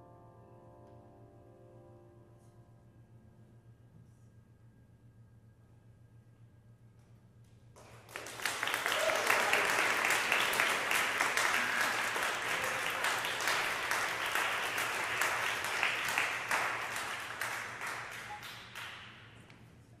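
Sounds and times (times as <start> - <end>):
audience applauding: 7.8 - 19.4.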